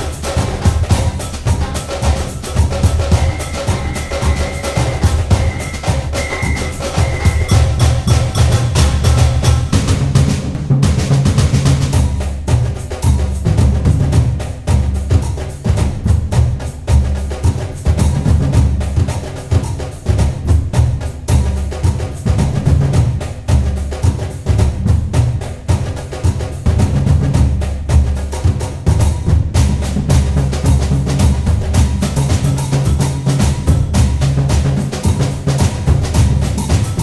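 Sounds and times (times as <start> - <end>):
music with heavy drums: 0.0 - 37.0.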